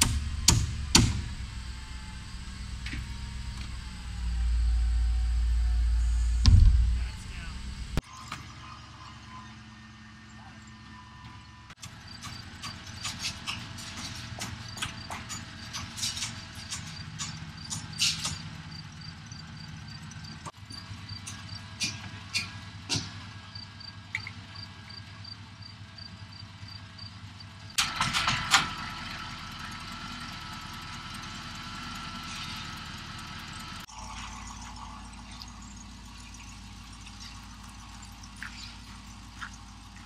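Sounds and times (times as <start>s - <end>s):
hammering on wood: 0.0s - 1.3s
truck engine running: 0.0s - 8.0s, 8.6s - 40.0s.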